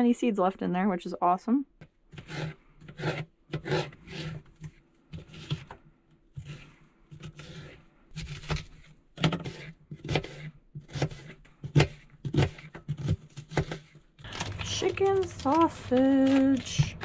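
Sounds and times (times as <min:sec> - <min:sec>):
knife chopping on plastic board: 0:02.1 - 0:13.9.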